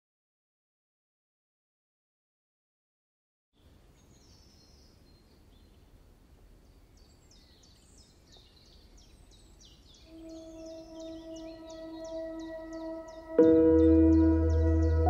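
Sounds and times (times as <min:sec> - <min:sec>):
birds chirping: 0:06.6 - 0:15.0
steady ringing musical tone: 0:10.1 - 0:15.0.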